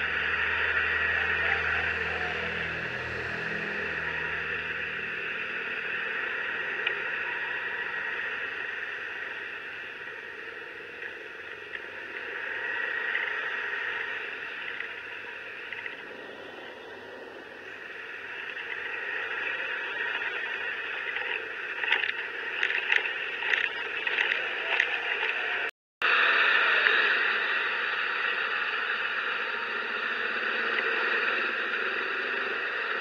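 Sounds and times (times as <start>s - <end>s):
wind and road noise: 0.0s - 26.2s.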